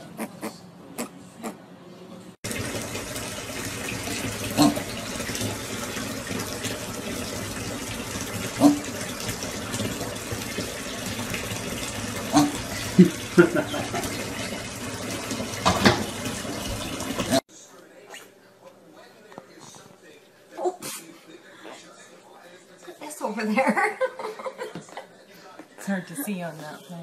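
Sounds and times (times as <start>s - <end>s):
water running into bathtub: 2.4s - 17.5s.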